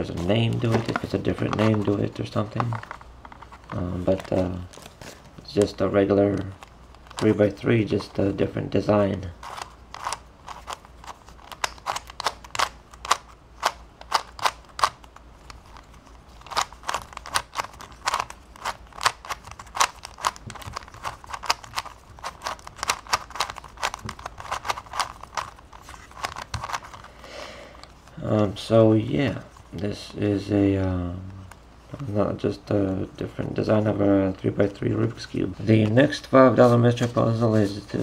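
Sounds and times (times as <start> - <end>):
puzzle cube layers clicking: 9.4 - 15.1, 16.4 - 27.0.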